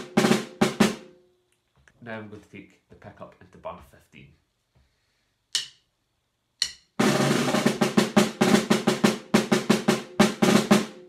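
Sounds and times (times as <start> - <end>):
snare drum strokes: 0.0 - 1.0
stick click: 5.5 - 5.8, 6.6 - 6.9.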